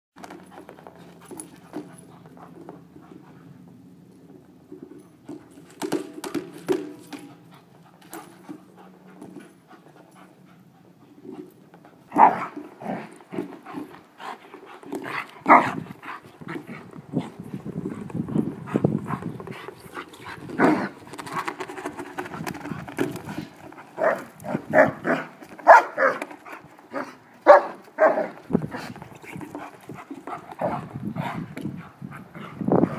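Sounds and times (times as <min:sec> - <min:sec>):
dog panting: 0:07.2 - 0:12.1, 0:12.8 - 0:32.9.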